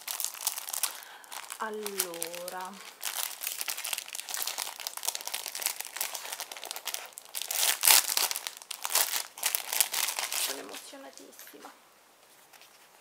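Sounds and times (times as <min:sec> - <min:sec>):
plastic packaging crinkling: 0:00.0 - 0:11.6.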